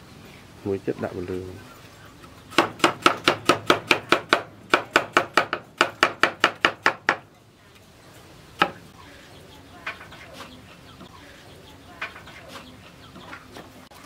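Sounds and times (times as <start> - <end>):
cleaver chopping on wooden board: 2.5 - 7.2.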